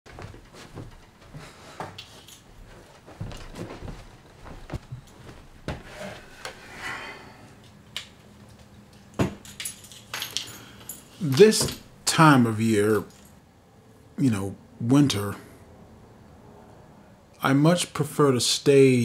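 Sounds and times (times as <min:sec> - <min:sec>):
objects handled on a workbench: 0:04.7 - 0:12.0.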